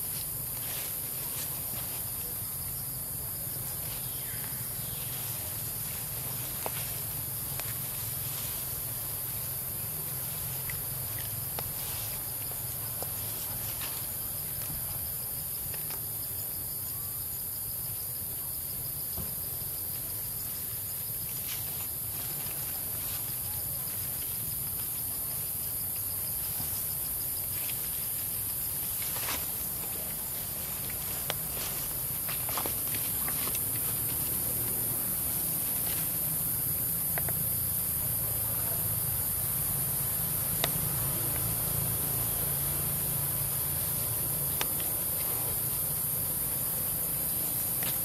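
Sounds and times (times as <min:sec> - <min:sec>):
insect chorus shrilling: 0:00.0 - 0:15.2.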